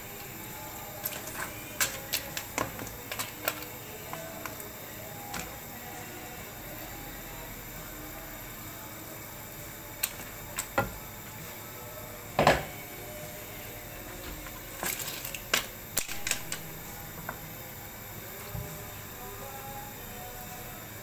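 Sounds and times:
spatula clicking while stirring: 1.0 - 4.7.

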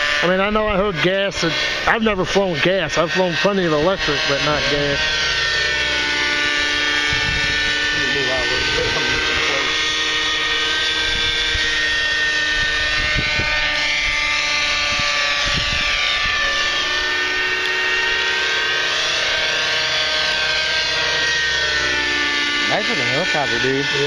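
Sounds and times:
helicopter rotor noise: 0.0 - 24.0
model helicopter engine whine: 0.0 - 24.0.

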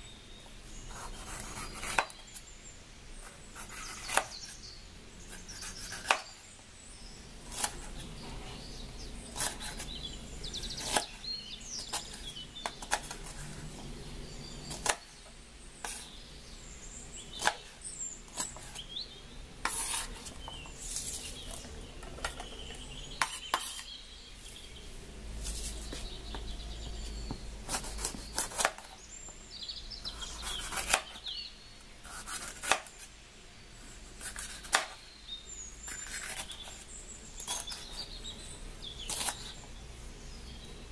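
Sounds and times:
knife slicing peppers: 0.9 - 2.2, 5.3 - 6.4, 9.3 - 9.9, 11.8 - 13.8, 19.6 - 22.5, 23.2 - 23.9, 27.2 - 29.0, 30.1 - 31.2, 32.0 - 33.1, 34.2 - 35.0, 35.8 - 36.8, 39.0 - 39.6.

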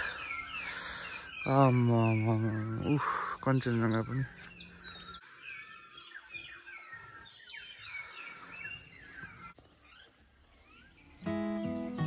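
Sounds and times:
small birds chirping: 0.0 - 12.0
music with held notes: 11.2 - 12.0.

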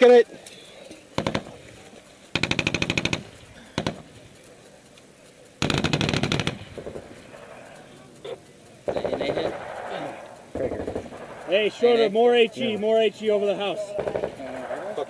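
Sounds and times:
automatic gunfire: 1.2 - 1.7, 2.3 - 4.2, 5.6 - 15.0.

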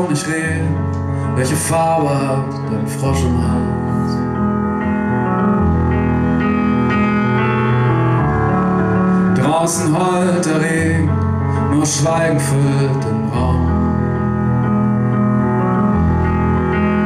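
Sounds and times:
man singing: 0.0 - 4.4, 9.3 - 14.1
piano chords on keyboard: 0.0 - 17.0.

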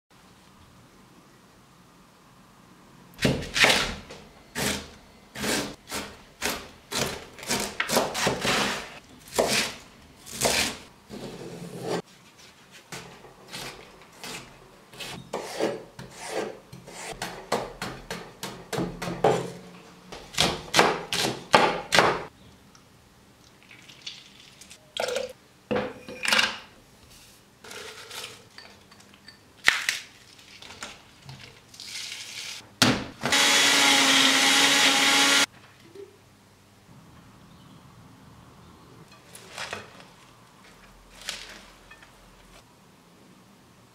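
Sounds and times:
knife chopping on wooden board: 20.2 - 22.3.

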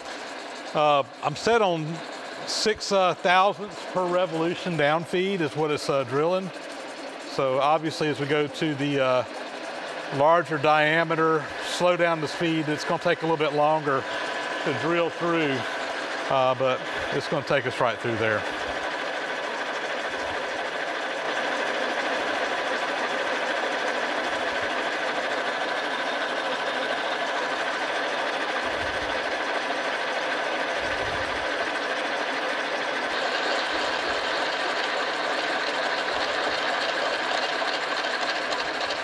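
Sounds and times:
drill press cutting metal: 7.3 - 39.0.

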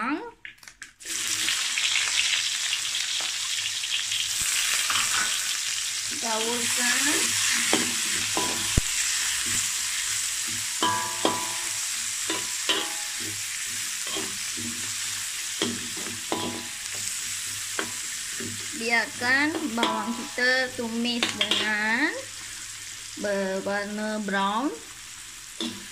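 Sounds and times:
onions sizzling in oil: 1.0 - 25.9
metal spoon scraping a wok: 4.8 - 5.5, 6.6 - 18.8, 21.2 - 21.8, 25.6 - 25.9.

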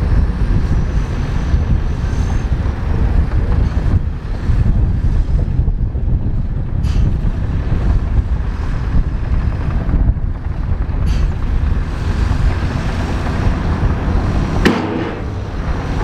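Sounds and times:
bulldozer running: 0.0 - 16.0
wind rumble on microphone: 0.0 - 16.0
sharp metal clank: 14.6 - 15.3.

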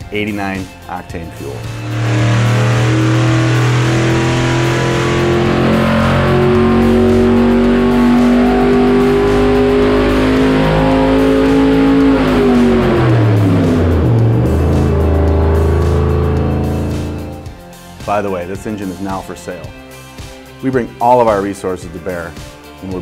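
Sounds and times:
background music: 0.0 - 23.0
marine engine revving under load: 1.3 - 17.9.

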